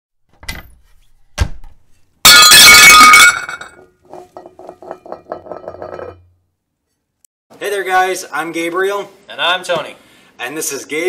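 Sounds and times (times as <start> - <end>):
glass shattering: 2.3 - 6.3.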